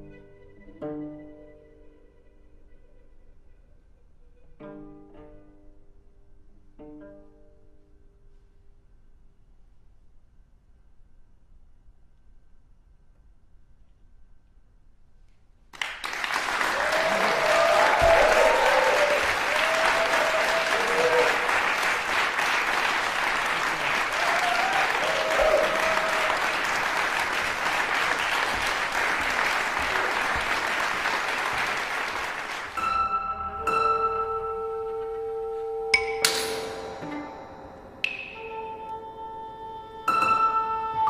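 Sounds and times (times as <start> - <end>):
audience applause: 15.8 - 32.8
audience shouts: 16.6 - 22.1, 23.4 - 27.0.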